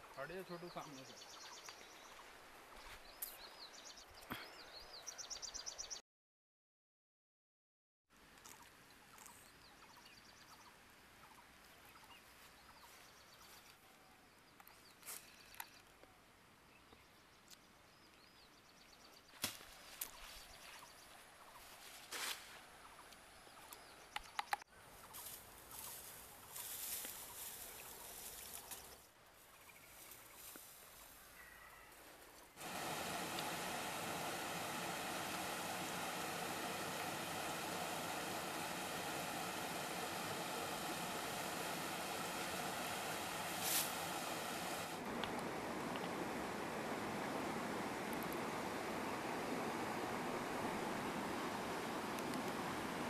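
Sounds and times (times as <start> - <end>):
birds chirping: 0.2 - 6.0, 32.6 - 53.0
leaves and branches rustling: 19.3 - 22.7, 24.9 - 53.0.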